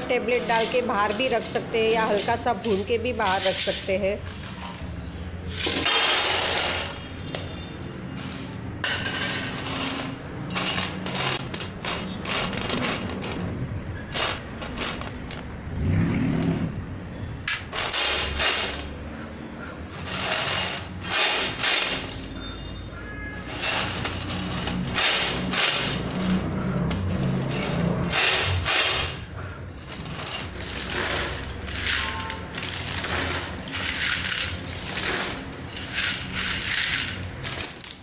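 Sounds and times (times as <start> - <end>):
peanuts rattling on steel: 0.0 - 3.9, 8.9 - 13.5, 14.1 - 15.4, 30.0 - 38.0.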